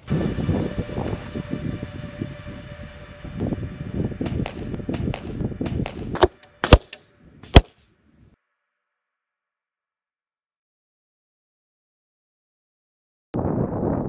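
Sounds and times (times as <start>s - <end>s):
wind buffeting microphone: 0.0s - 6.2s, 13.4s - 14.0s
arrows striking target: 4.2s - 7.9s.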